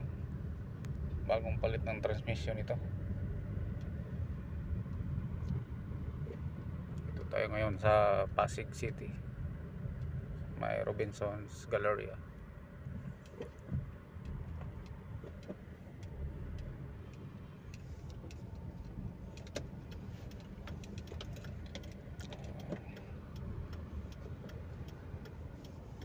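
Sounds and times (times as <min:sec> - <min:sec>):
car engine and road rumble: 0:00.0 - 0:26.0
light clicks: 0:13.2 - 0:26.0.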